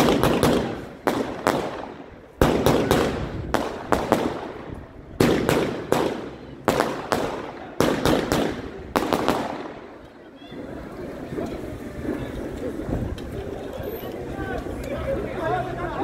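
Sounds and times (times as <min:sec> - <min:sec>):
fireworks banging: 0:00.0 - 0:13.3.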